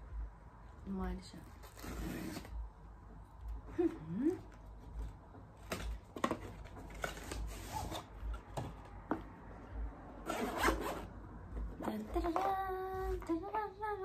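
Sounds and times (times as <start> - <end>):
cardboard and fabric rubbing: 3.7 - 8.8.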